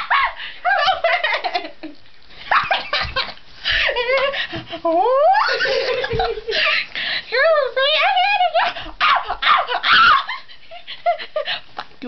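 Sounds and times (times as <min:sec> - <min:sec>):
people giggling: 0:05.4 - 0:06.9.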